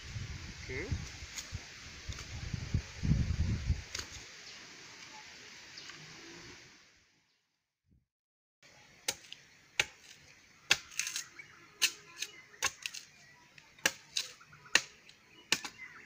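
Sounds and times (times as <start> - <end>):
machete chopping wooden stake: 9.0 - 16.0.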